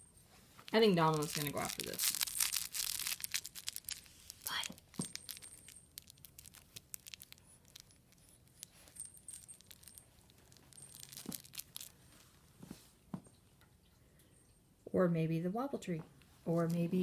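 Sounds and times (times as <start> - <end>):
cats rustling toys: 0.0 - 13.1
thin high tinkles: 4.5 - 12.0.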